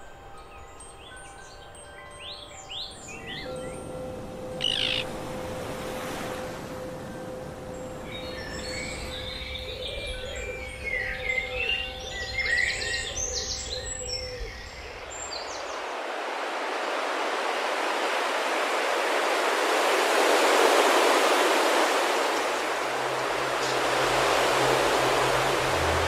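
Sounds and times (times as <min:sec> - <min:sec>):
songbirds chirping and trilling: 0:00.0 - 0:18.1, 0:18.7 - 0:26.0
rush of starling wings: 0:04.5 - 0:07.0, 0:14.5 - 0:26.0.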